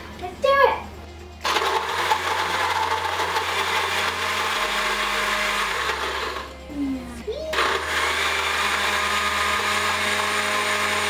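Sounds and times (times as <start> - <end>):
blender crushing ice: 1.4 - 6.5, 7.5 - 11.0.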